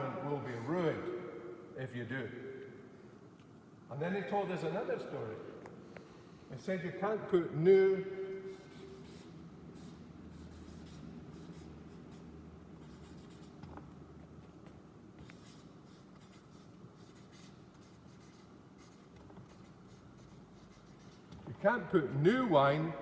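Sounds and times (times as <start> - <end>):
marker pen scratching on paper: 8.5 - 14.0, 14.7 - 21.6.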